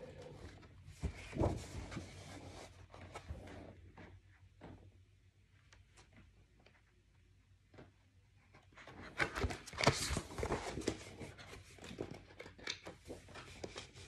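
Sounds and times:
book pages turning: 0.0s - 3.6s, 8.8s - 14.0s
paper rustling and crinkling: 0.0s - 3.7s, 8.8s - 14.0s.

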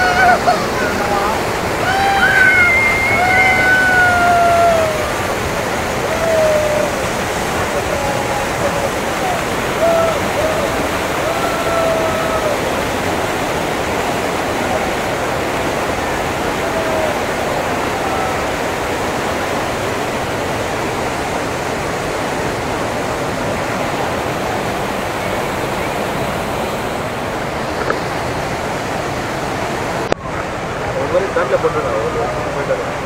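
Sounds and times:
churning whitewater: 0.0s - 33.0s
waterfall rushing: 0.0s - 33.0s.

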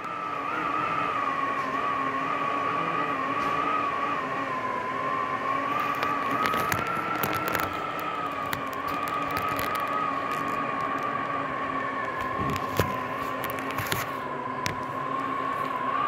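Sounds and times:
gusty wind howling and whistling: 0.0s - 16.0s
sharp rattling clicks: 5.8s - 11.1s.

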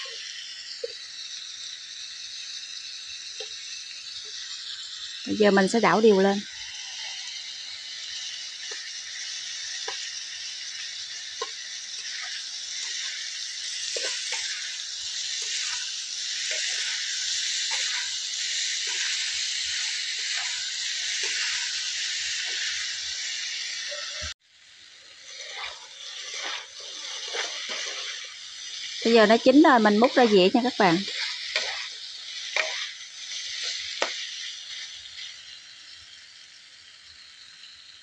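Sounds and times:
vegetables sizzling in a wok: 0.0s - 38.0s
metal spatula scraping a wok: 5.5s - 24.4s, 25.1s - 35.6s.

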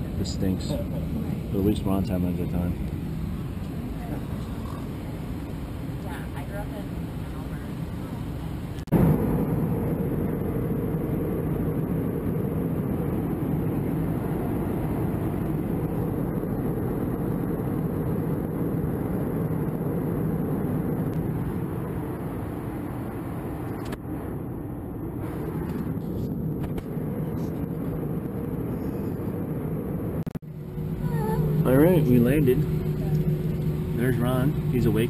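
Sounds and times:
airliner cabin roar in flight: 0.0s - 35.0s.

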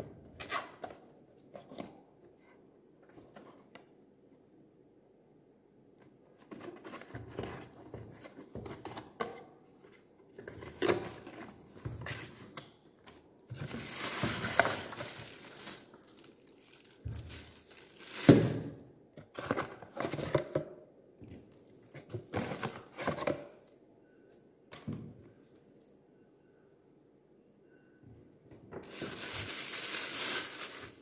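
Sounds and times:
packaging rustling and crinkling: 13.5s - 18.8s, 28.8s - 31.0s.

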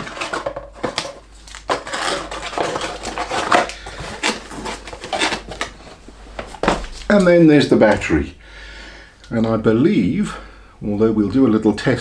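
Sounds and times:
cardboard packaging crinkling: 0.0s - 7.4s.

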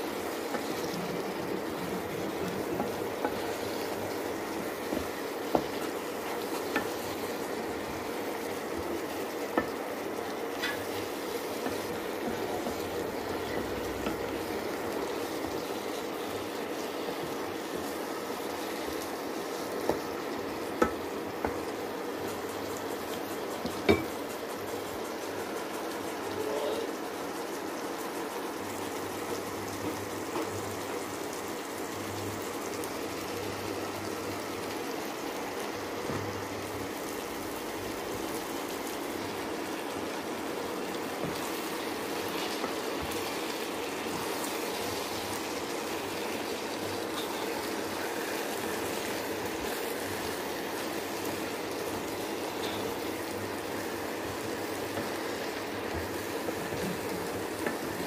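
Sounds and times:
curry sizzling in a pan: 0.0s - 58.0s
wooden spatula knocking: 2.3s - 7.5s.

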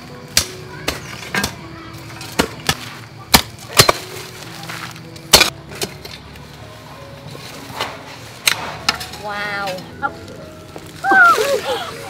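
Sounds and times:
hoes striking hard soil: 2.2s - 4.2s, 5.2s - 6.0s.

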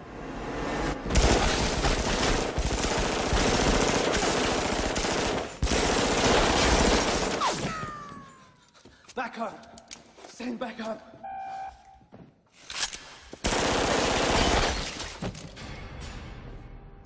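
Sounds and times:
rapid pistol gunfire: 1.2s - 7.4s, 13.4s - 14.7s.

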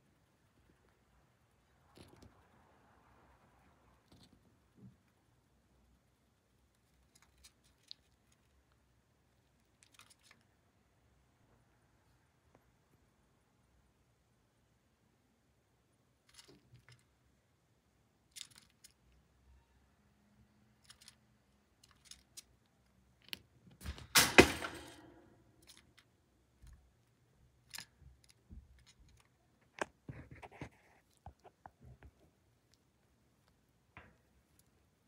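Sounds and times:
loud crack: 24.2s - 25.2s.

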